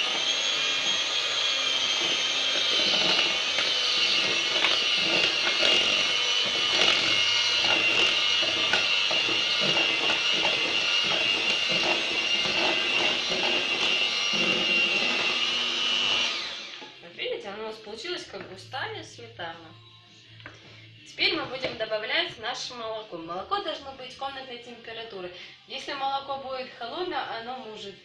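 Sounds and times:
electric mixer motor whine: 0.0s - 17.0s
mixer clicking: 0.0s - 17.0s.

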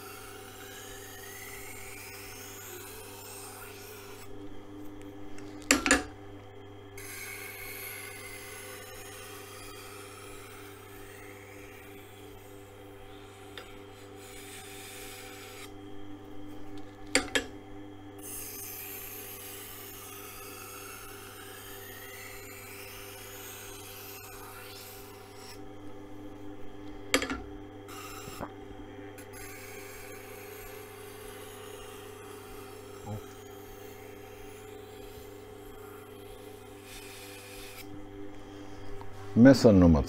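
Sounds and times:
knife scraping on grinding wheel: 0.0s - 4.5s, 7.0s - 17.5s, 18.2s - 25.9s, 27.1s - 28.5s, 29.2s - 38.0s
grinder motor hum: 0.0s - 40.0s.

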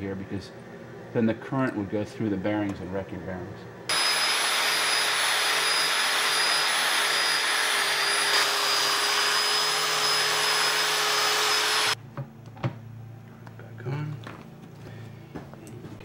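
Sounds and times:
orbital sander whirring on metal: 3.9s - 12.0s.

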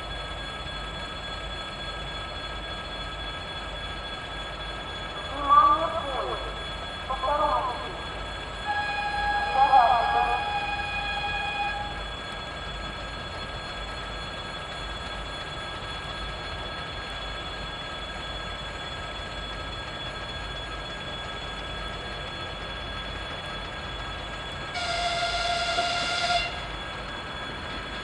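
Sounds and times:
train horn: 8.6s - 12.0s, 24.7s - 26.7s.

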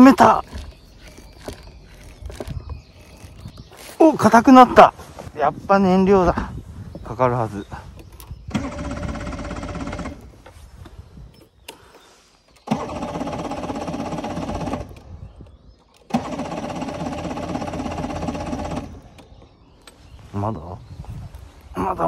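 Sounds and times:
outboard engine cranking: 0.0s - 3.8s, 8.0s - 20.0s.

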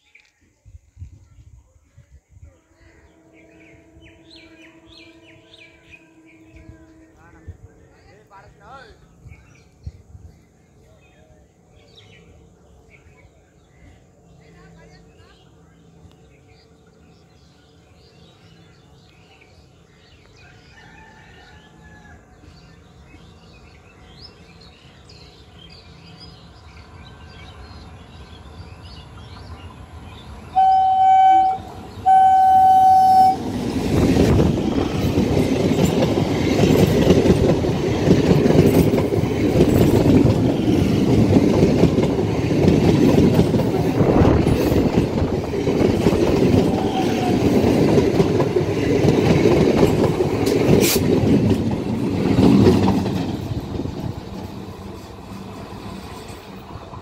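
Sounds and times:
train rumbling: 0.6s - 57.0s
train horn blasts: 2.7s - 7.7s, 30.5s - 33.6s, 46.6s - 47.6s
train wheel clatter: 33.2s - 57.0s.

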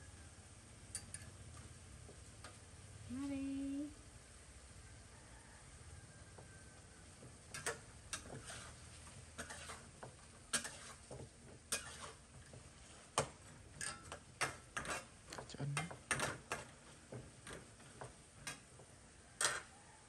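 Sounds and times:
faint sizzle: 0.0s - 20.0s
metal spatula scraping a wok: 7.4s - 19.8s.

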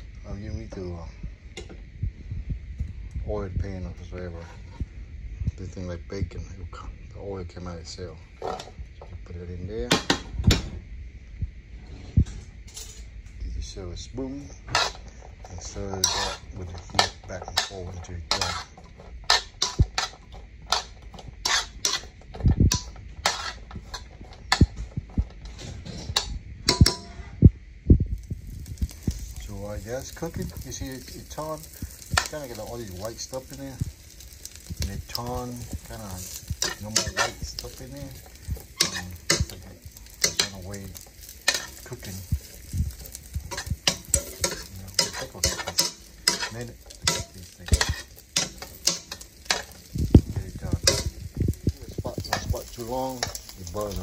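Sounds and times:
dull low thumps: 1.2s - 3.8s, 26.1s - 29.3s
sausage sizzling in fat: 11.8s - 54.0s
metal spoon scraping frying pan: 14.6s - 27.3s, 30.0s - 54.0s.

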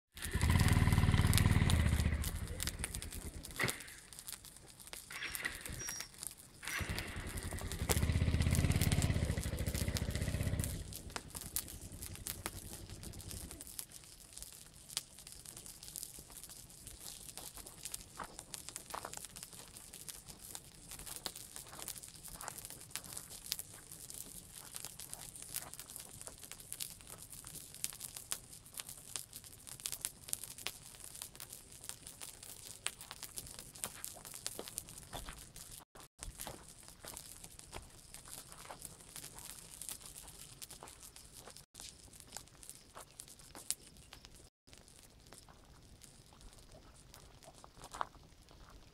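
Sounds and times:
fire crackling and popping: 0.1s - 48.9s
engine running: 0.2s - 3.3s, 6.7s - 13.5s.

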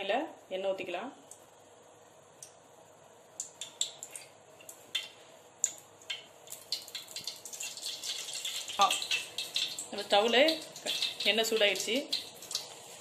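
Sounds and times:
hot oil crackling and popping: 3.3s - 13.0s.

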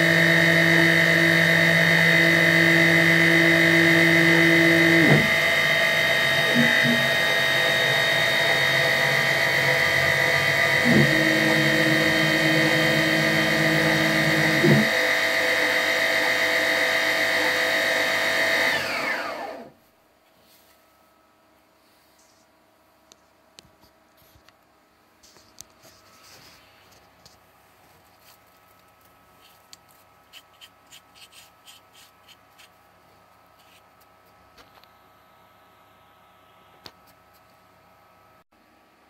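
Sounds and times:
spindle motor whine: 0.0s - 19.8s.

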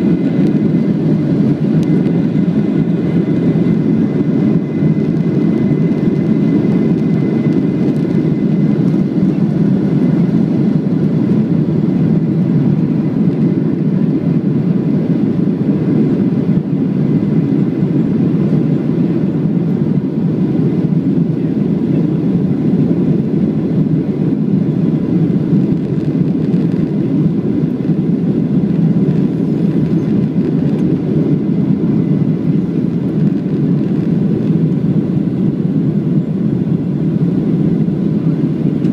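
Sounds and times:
jet engine low rush: 0.0s - 38.9s
faint thin whine: 28.5s - 34.9s.

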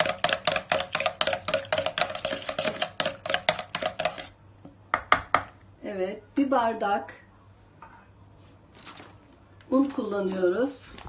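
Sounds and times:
whisk clinking against bowl: 0.0s - 4.3s.

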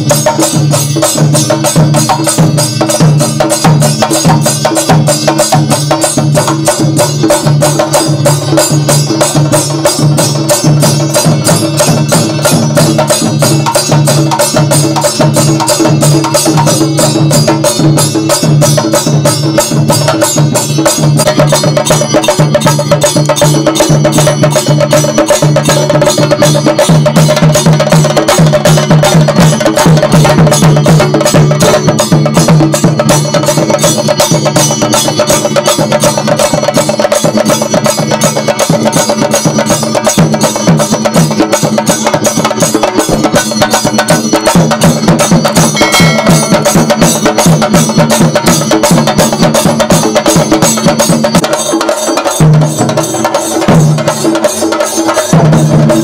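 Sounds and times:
chenda drums beaten fast: 0.0s - 56.0s
deep drum tone: 45.5s - 48.1s.

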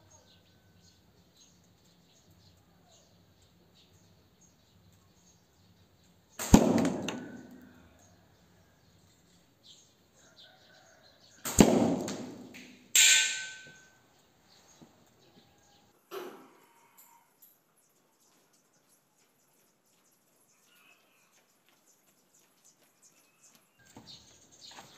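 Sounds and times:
slingshot impacts ringing: 6.4s - 7.7s, 11.5s - 13.9s.

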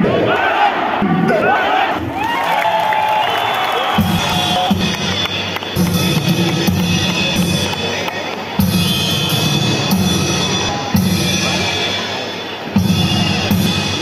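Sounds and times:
loud music with heavy drum beat: 4.0s - 8.0s, 8.6s - 14.0s.

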